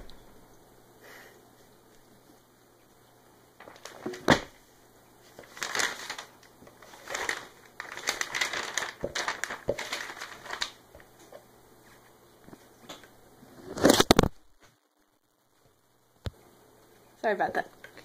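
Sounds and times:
book pages flipping: 5.3s - 13.0s, 13.6s - 14.4s.

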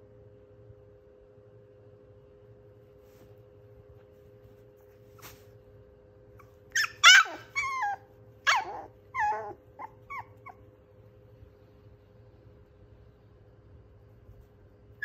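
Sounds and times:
puppy yelping: 6.3s - 10.8s.

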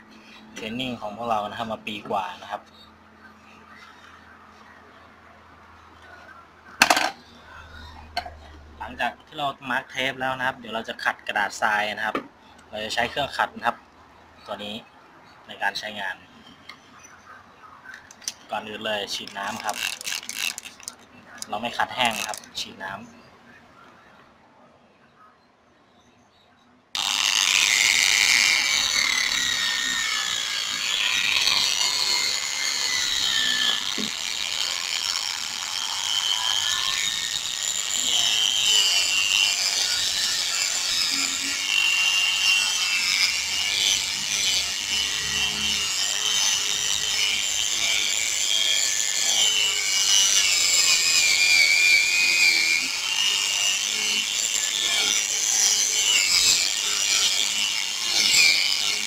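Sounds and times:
machine sander wet-sanding plastic: 19.2s - 21.5s, 22.1s - 22.5s, 27.0s - 59.0s.

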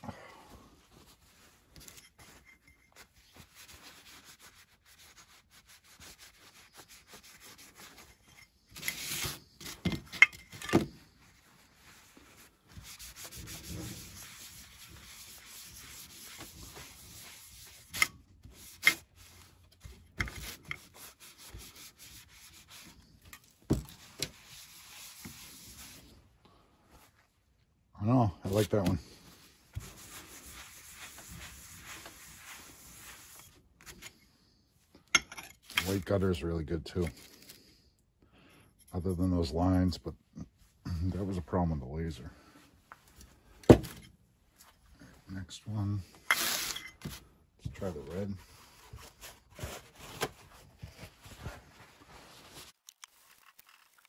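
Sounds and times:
cloth scrubbing ceramic tile: 11.8s - 19.4s, 29.8s - 33.6s.

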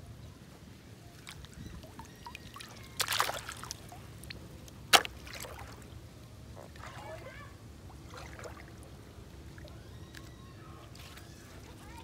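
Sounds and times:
water splashing: 1.2s - 6.0s, 6.6s - 8.9s.

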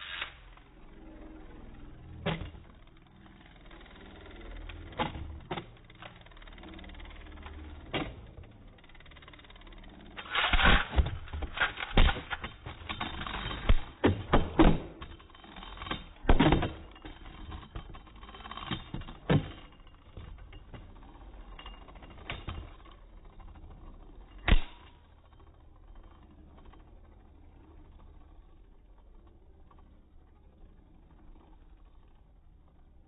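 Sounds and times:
spinning tops clacking: 4.3s - 14.0s.

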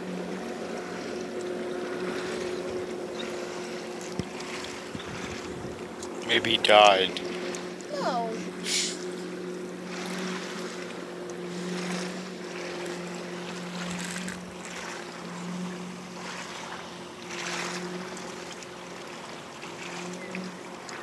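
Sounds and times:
boat motor running: 0.0s - 21.0s
water rushing: 0.0s - 21.0s
wind noise: 4.7s - 5.9s.

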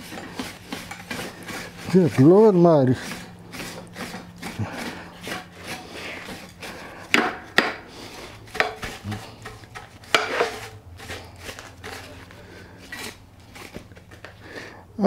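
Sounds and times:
brush scrubbing metal deck: 0.0s - 14.6s
sharp knocks: 7.1s - 7.8s, 8.5s - 10.4s.

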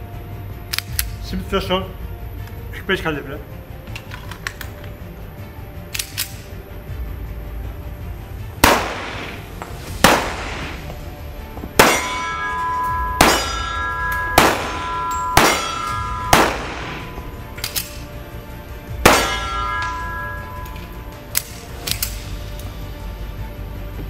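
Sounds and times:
pistol shots echoing indoors: 8.6s - 10.8s, 11.8s - 18.1s, 19.0s - 20.4s
metallic ringing tone: 11.8s - 18.3s, 19.0s - 21.3s.

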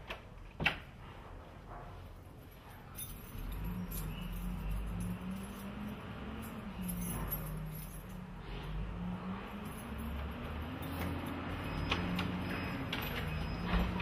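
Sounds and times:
keys jangling in a lock: 2.4s - 8.4s, 9.5s - 14.0s.

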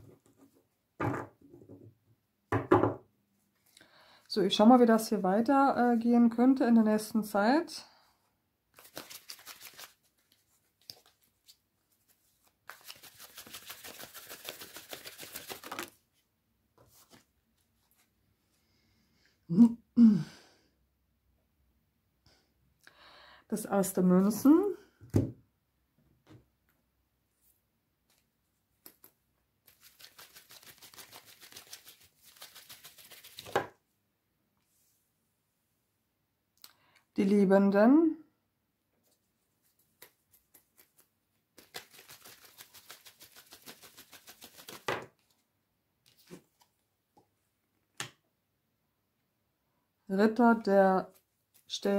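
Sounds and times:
cards being shuffled: 8.8s - 16.0s, 29.7s - 33.7s, 39.6s - 45.4s, 46.1s - 46.7s.

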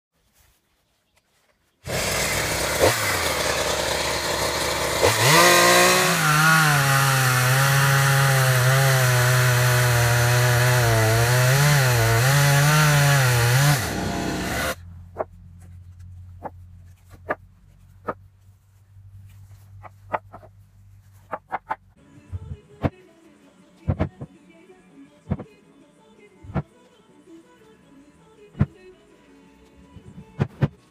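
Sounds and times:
chainsaw cutting log: 1.8s - 15.3s.

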